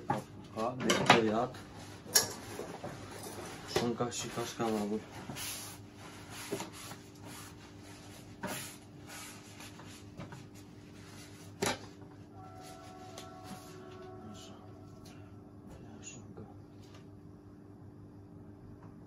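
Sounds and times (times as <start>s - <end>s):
steady low hum: 0.0s - 19.0s
paper towel rubbing wood: 3.4s - 11.5s.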